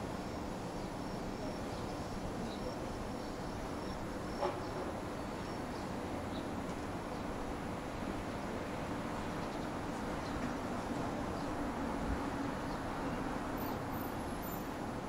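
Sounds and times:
insects chirping: 0:00.3 - 0:05.9.

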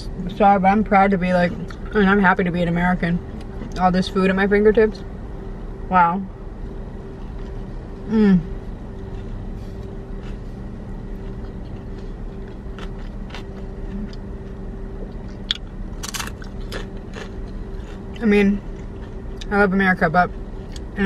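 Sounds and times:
car hum: 0:00.0 - 0:21.0
person chewing a sandwich: 0:07.0 - 0:19.4
person humming mm: 0:08.1 - 0:08.5
tortilla chip crunch: 0:09.0 - 0:10.5, 0:11.1 - 0:14.6, 0:15.2 - 0:19.5.

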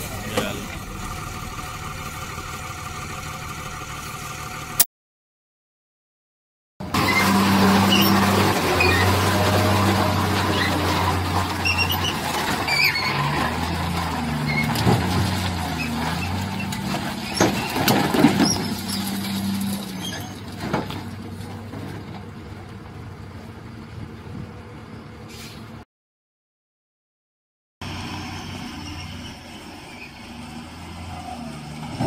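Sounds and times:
diesel truck engine labouring: 0:00.0 - 0:04.9, 0:06.8 - 0:25.8, 0:27.8 - 0:32.0
knocks and clatters: 0:08.2 - 0:23.0.

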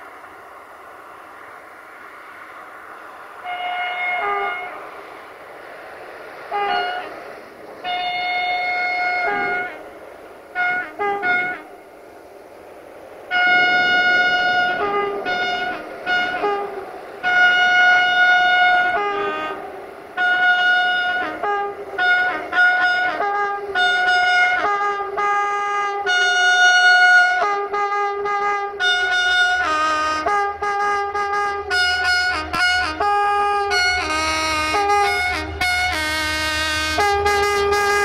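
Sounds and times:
brass-like melody: 0:07.9 - 0:09.8, 0:10.6 - 0:11.8, 0:13.3 - 0:38.0.

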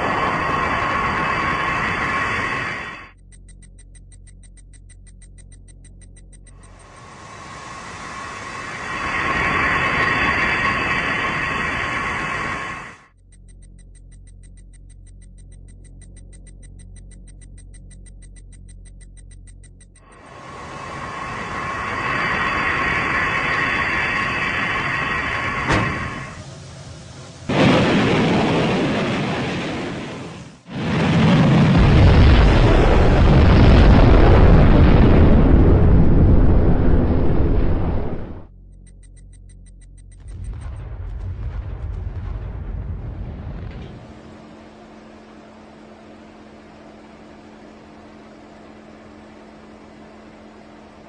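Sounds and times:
rush of noise: 0:00.0 - 0:03.2, 0:06.6 - 0:13.1, 0:20.0 - 0:38.5
rocket motor roar: 0:00.0 - 0:38.6, 0:40.1 - 0:51.0
steady low hum: 0:00.0 - 0:51.0
fast electronic ticking: 0:03.0 - 0:07.3, 0:13.1 - 0:20.3, 0:38.6 - 0:40.8.

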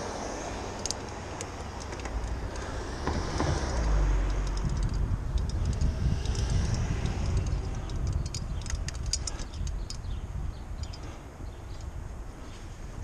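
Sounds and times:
wind rumbling on microphone: 0:00.0 - 0:13.0
light irregular clicks: 0:00.7 - 0:10.2, 0:10.8 - 0:11.1.

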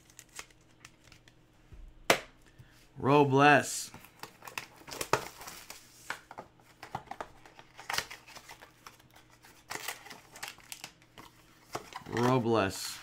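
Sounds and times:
card pack wrapper crinkling: 0:00.0 - 0:01.4, 0:06.7 - 0:12.4.

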